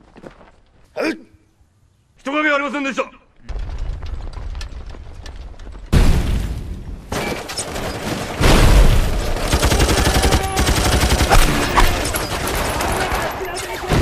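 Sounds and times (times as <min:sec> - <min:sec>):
rifle and machine-gun fire: 0:07.6 - 0:14.0.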